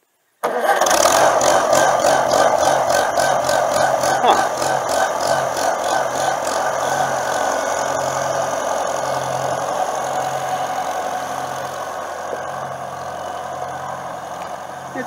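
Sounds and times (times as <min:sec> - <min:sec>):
tractor engine idling: 0:00.4 - 0:15.0.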